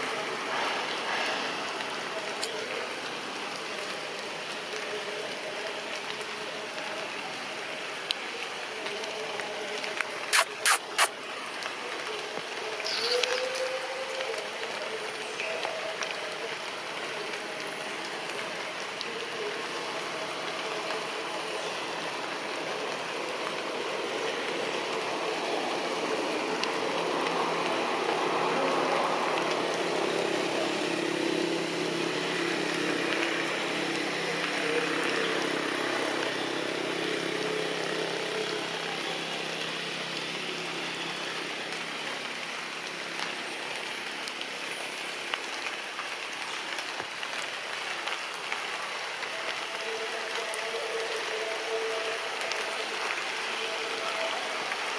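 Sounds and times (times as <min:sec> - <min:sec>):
steady outdoor hiss: 0:00.0 - 0:54.9.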